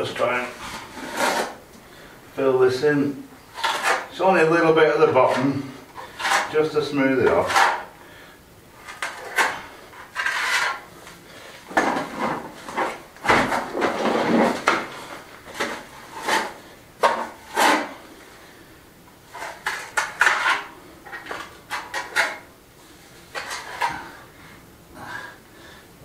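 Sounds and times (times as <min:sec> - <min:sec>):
trowel scraping mortar: 0:00.6 - 0:01.6, 0:03.5 - 0:04.1, 0:05.1 - 0:06.6, 0:07.2 - 0:07.9, 0:08.9 - 0:10.8, 0:15.6 - 0:18.0.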